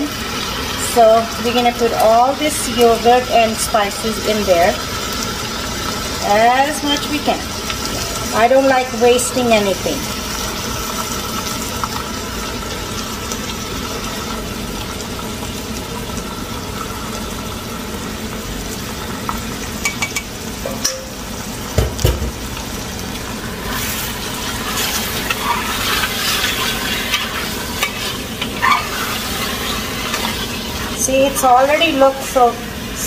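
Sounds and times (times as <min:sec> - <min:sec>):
paste sizzling in a pot: 0:00.0 - 0:33.0
spatula knocking on metal: 0:21.8 - 0:22.4
spatula scraping and stirring: 0:23.5 - 0:31.2.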